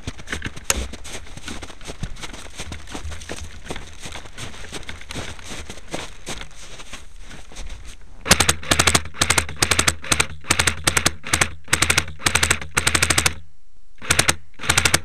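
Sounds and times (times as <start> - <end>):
airsoft gun firing bursts: 8.2 - 13.4, 14.0 - 15.0.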